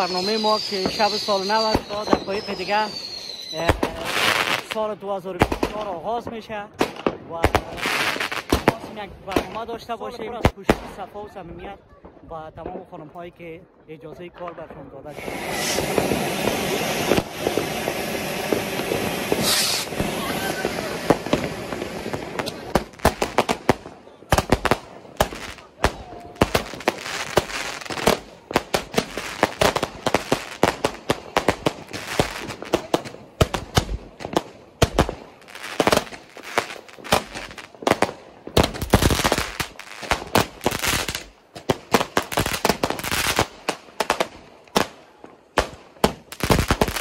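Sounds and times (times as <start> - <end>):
fireworks banging and crackling: 0.0 - 47.0.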